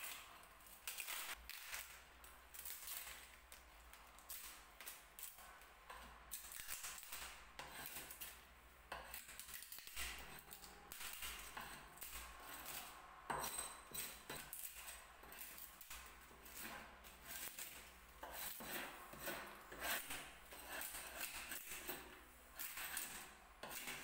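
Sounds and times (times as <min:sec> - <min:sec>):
blade scraping wood veneer: 0:16.4 - 0:24.0.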